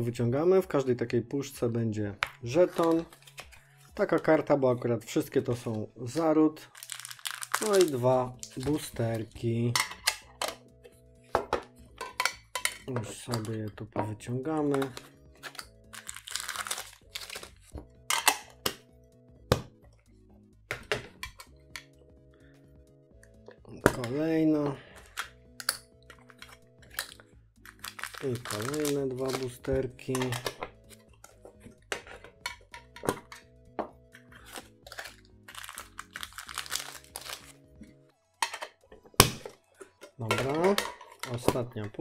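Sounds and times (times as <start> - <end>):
soft background music: 0.0 - 42.0
foil packs crinkling: 6.6 - 9.1, 14.8 - 17.7, 26.3 - 30.5, 34.4 - 37.6
metal tin clicks and knocks: 9.7 - 10.7, 11.3 - 15.6, 18.1 - 18.8, 20.7 - 22.0, 28.8 - 34.0, 38.4 - 42.0.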